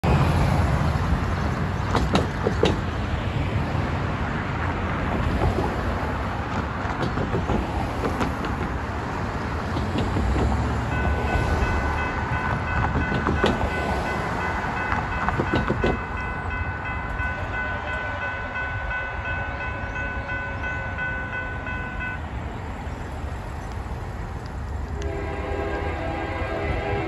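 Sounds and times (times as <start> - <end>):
road traffic: 0.0 - 27.0
cars knocking over rails: 1.8 - 3.0, 6.5 - 10.9, 11.6 - 16.2
crossing bell ringing: 10.8 - 22.4.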